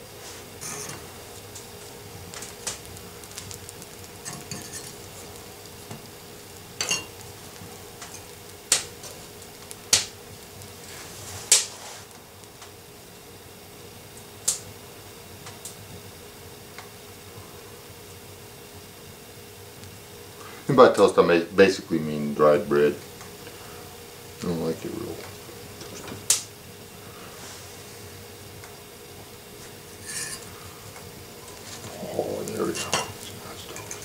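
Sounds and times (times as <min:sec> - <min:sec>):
metal fork clinking on stovetop: 0:04.2 - 0:04.9, 0:06.8 - 0:07.1, 0:32.8 - 0:33.2.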